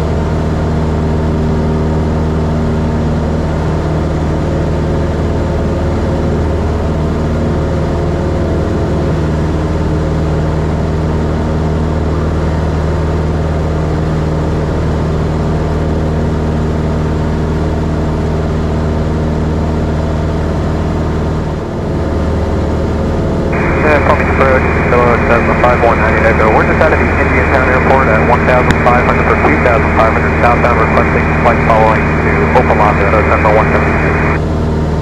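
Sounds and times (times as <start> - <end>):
propeller plane engine running: 0.0 - 35.0.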